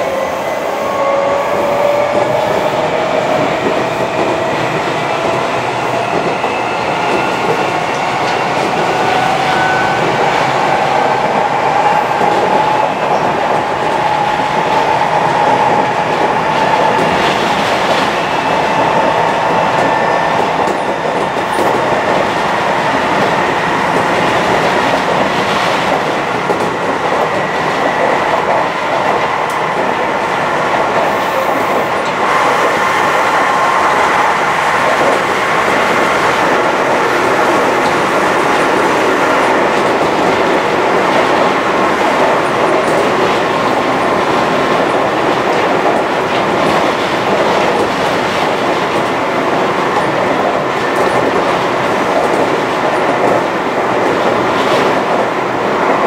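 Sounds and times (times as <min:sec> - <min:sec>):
rail-joint clicks: 0:49.9 - 0:55.3.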